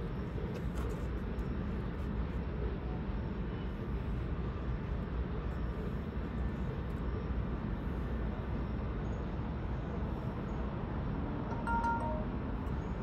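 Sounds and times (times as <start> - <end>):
diesel freight locomotive running: 11.5 - 12.7.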